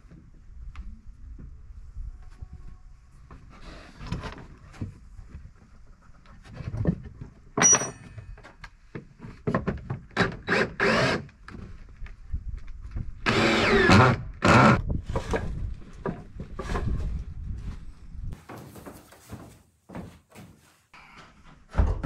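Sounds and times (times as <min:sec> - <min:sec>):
cordless drill driving screws: 0:10.4 - 0:11.3, 0:13.3 - 0:14.8.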